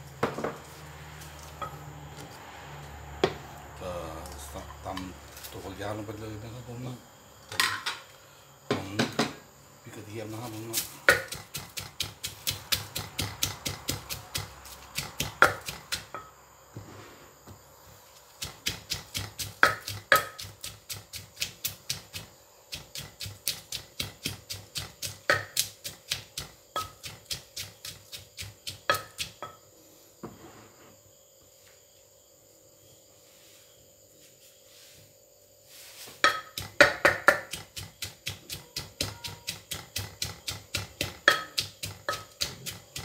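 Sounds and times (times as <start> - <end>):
wooden pestle pounding in mortar: 10.8 - 16.2, 18.4 - 29.5, 36.2 - 43.0.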